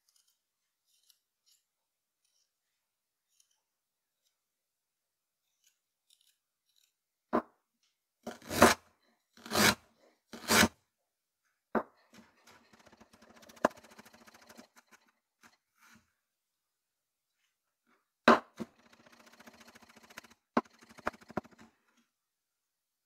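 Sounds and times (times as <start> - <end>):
knife slicing ginger on board: 9.4 - 9.8.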